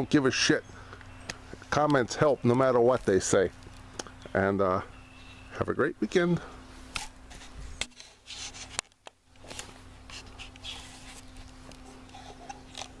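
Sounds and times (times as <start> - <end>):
faint steady hum: 0.0 - 13.0
camera handling rubbing and rustling: 6.9 - 13.0.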